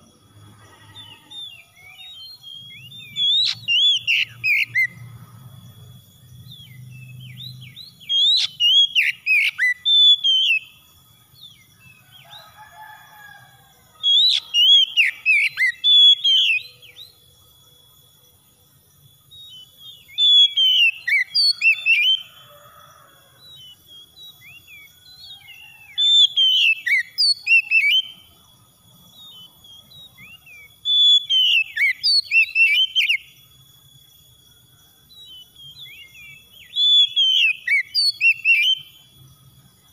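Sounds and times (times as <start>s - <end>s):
bird singing whistled phrases: 1.4s - 5.0s, 6.5s - 10.8s, 14.1s - 17.2s, 19.4s - 22.3s, 23.6s - 28.2s, 29.3s - 33.3s, 35.2s - 38.9s.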